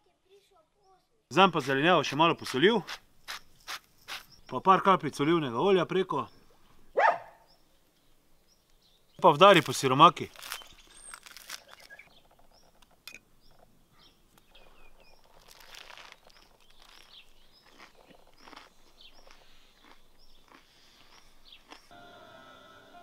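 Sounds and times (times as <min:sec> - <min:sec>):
small birds chirping: 0:00.2 - 0:22.0
crunching and chewing food: 0:09.3 - 0:13.7, 0:14.3 - 0:21.9
music: 0:21.9 - 0:23.0.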